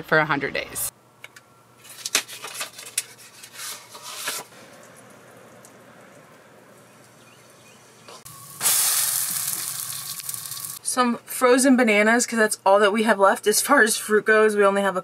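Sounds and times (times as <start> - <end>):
batter sizzling in hot pan: 8.3 - 10.8.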